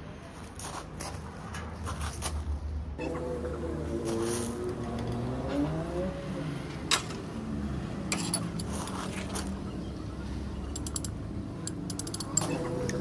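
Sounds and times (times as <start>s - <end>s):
light metallic clicks and taps: 10.7s - 13.0s.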